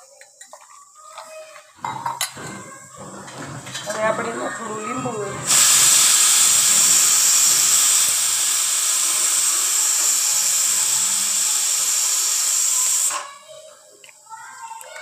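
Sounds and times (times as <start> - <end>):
pressure cooker steam hiss: 5.3 - 13.6.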